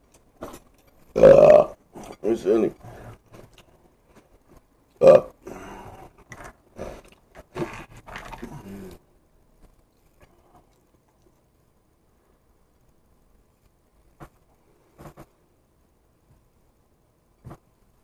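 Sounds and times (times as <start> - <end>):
muffled vocal noises: 1.2 - 3.3, 5.0 - 9.1
man chewing food: 2.8 - 11.6.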